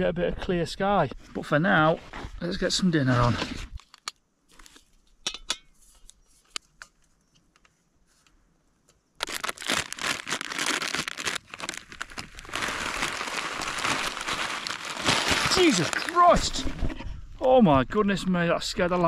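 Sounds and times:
plastic packet crinkling: 9.2s - 16.6s.

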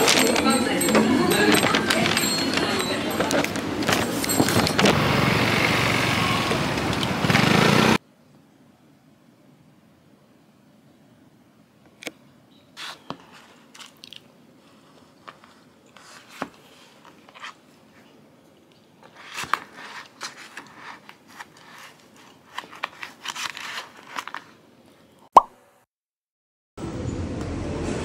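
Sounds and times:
person eating crunchy food: 13.6s - 14.3s.

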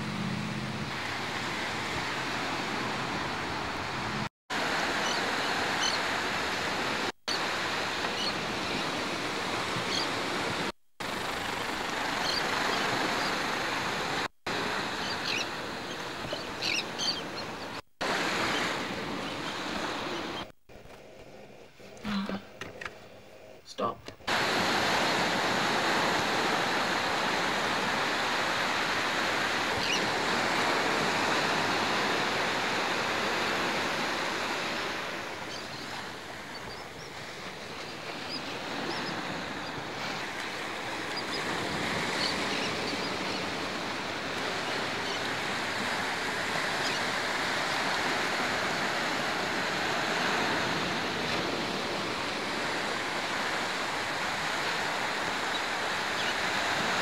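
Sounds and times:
surf: 23.8s - 57.0s.

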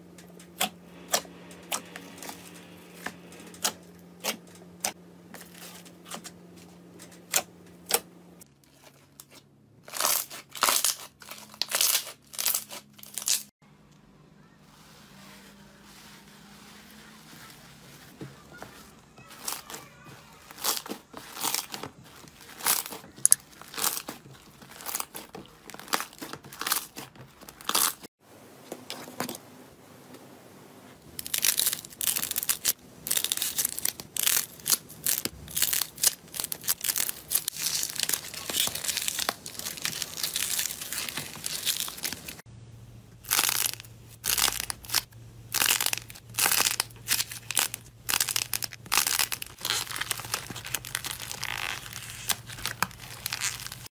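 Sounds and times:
slime squeezed crackling and popping: 8.8s - 13.5s, 20.4s - 28.0s, 43.2s - 53.9s.

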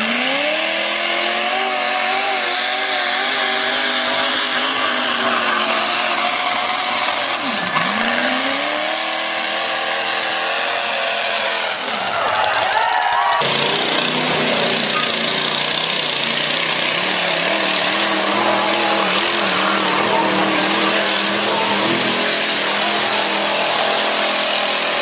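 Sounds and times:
truck engine revving: 0.0s - 25.0s.

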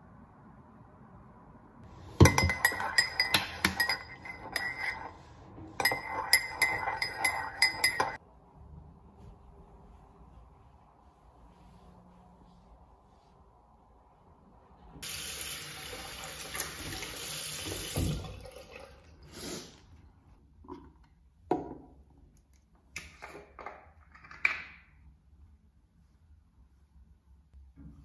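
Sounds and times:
sink tap running: 15.0s - 18.5s.

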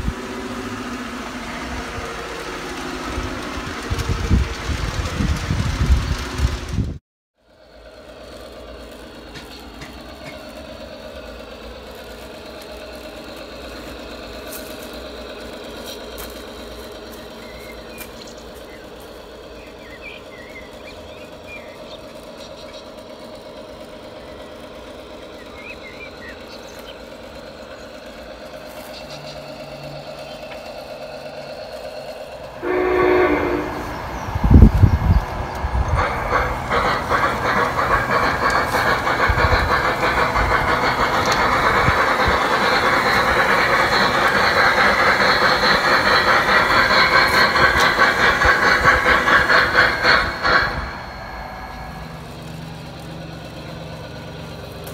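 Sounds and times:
heavy low steam chuffs: 0.0s - 54.9s
model locomotive motor hum: 0.0s - 54.9s
locomotive chime whistle blast: 32.6s - 34.2s.

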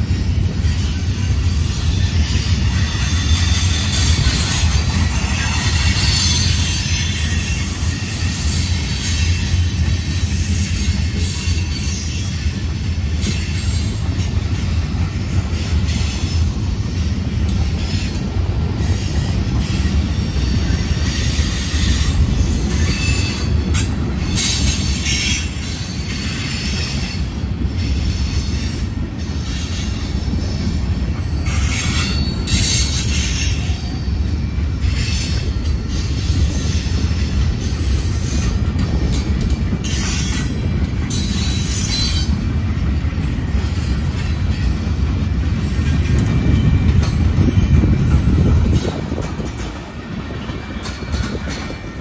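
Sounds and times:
train wheels rumbling on track: 0.0s - 52.0s
high-pitched wheel squeals: 39.8s - 42.5s.

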